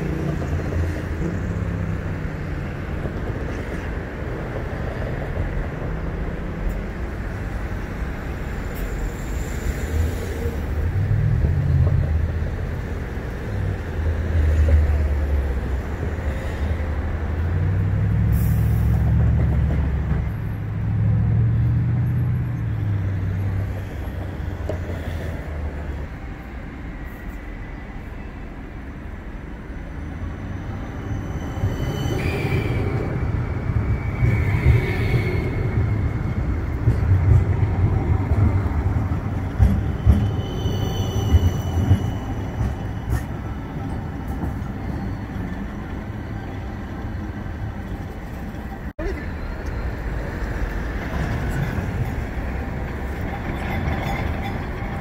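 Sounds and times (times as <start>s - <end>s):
tram rumbling on rails: 0.0s - 55.0s
high wheel squeal: 30.0s - 36.8s, 39.8s - 46.6s.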